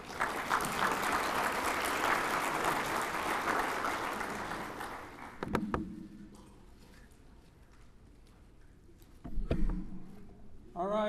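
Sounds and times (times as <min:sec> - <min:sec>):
audience applauding: 0:00.0 - 0:05.5
sharp knocks: 0:05.4 - 0:06.0.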